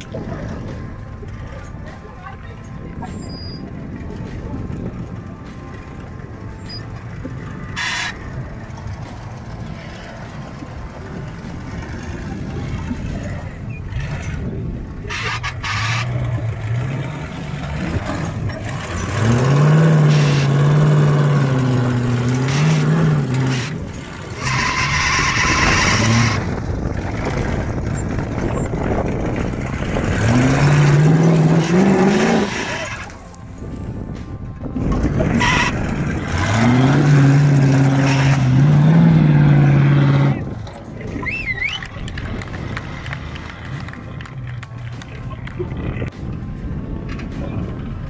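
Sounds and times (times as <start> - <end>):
off-road vehicle engine revving: 7.6 - 33.3, 34.8 - 46.1.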